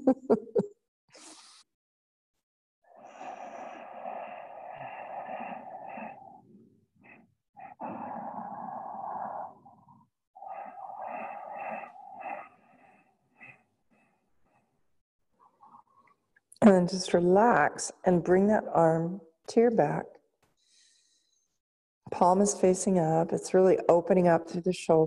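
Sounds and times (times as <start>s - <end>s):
woman breathing deeply: 2.9s - 13.7s.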